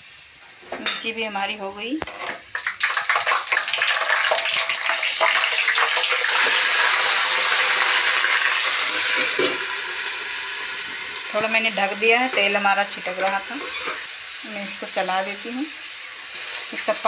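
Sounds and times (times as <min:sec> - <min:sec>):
greens sizzling in hot oil: 0:00.0 - 0:17.0
oil spatter crackling: 0:02.0 - 0:11.7.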